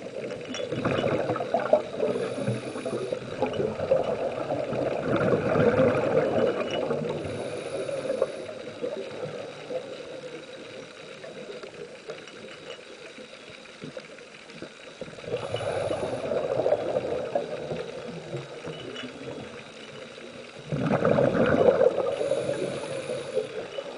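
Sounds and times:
underwater hiss: 0:00.0 - 0:23.9
breath bubbling underwater: 0:00.7 - 0:08.0, 0:15.2 - 0:18.4, 0:20.7 - 0:23.7.

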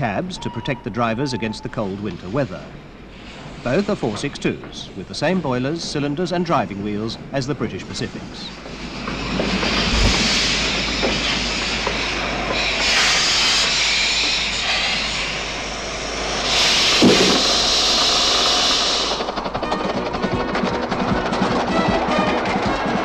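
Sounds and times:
steam locomotive hissing: 0:00.0 - 0:23.0
music: 0:19.6 - 0:23.0.

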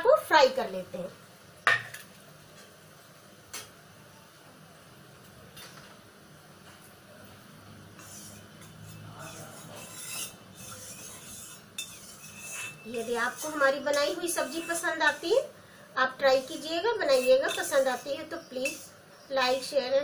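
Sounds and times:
metal spatula scraping in pan: 0:07.9 - 0:19.9
kitchen utensils clinking: 0:16.6 - 0:18.9.

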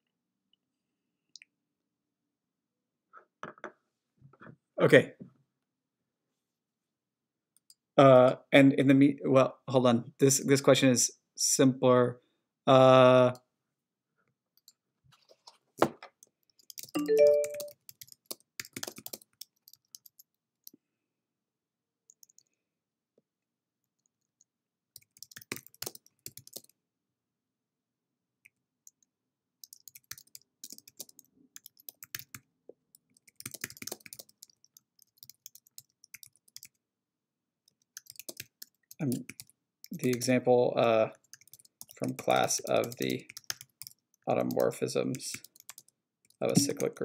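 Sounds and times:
computer keyboard typing: 0:16.5 - 0:20.3, 0:25.0 - 0:26.8, 0:29.6 - 0:36.8, 0:37.7 - 0:40.4, 0:41.2 - 0:47.0.

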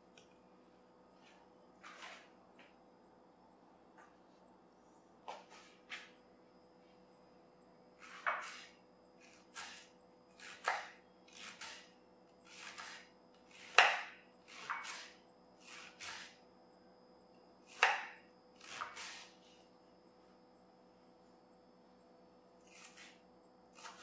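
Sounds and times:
knife chopping cabbage on wooden board: 0:08.0 - 0:16.4, 0:17.6 - 0:19.3, 0:22.6 - 0:24.0.

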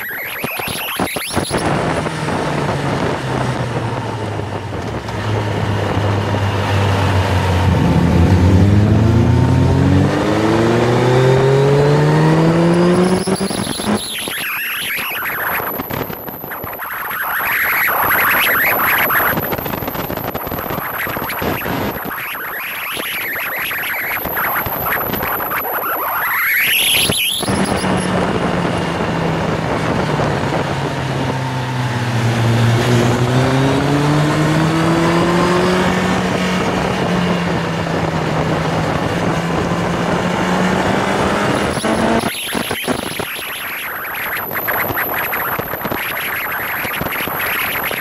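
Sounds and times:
motorcycle engine accelerating: 0:01.2 - 0:48.0
wind rush: 0:14.8 - 0:48.0.

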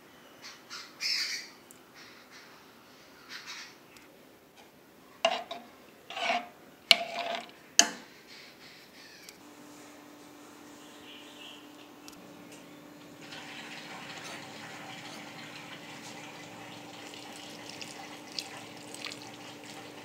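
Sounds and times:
spoon scraping metal pot: 0:05.3 - 0:07.9, 0:13.9 - 0:16.2.

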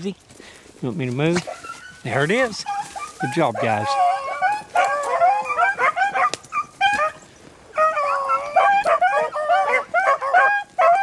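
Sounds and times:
hounds baying: 0:01.3 - 0:11.0.

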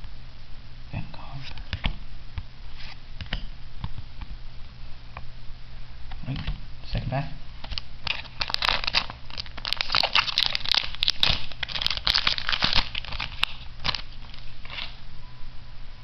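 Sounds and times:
foil wrapper crinkling: 0:07.7 - 0:15.0.

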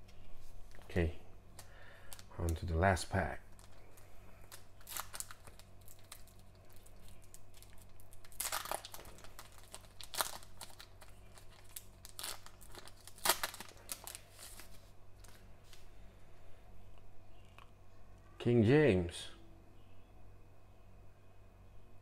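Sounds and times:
foil wrapper crackling and tearing: 0:01.6 - 0:02.8, 0:03.5 - 0:15.5.

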